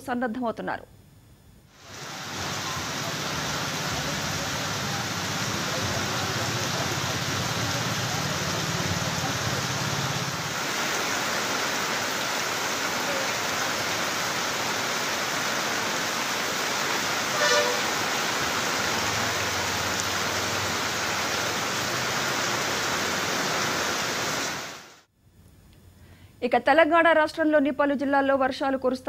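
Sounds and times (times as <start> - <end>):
heavy rain pouring on streets: 1.8 - 25.1
vehicle horn toot: 17.3 - 18.0.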